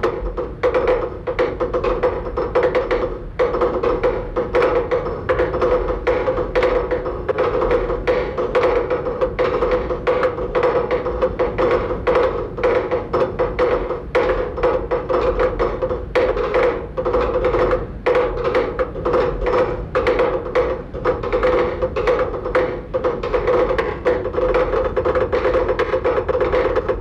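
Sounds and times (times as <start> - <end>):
wood-block clicks and knocks: 0.0 - 27.0.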